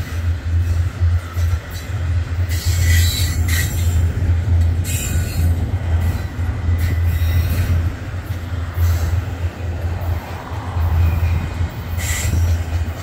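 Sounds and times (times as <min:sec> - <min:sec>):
freight train rumbling past: 0:00.0 - 0:13.0
train clanks: 0:00.0 - 0:13.0
high wheel squeal: 0:10.9 - 0:12.9.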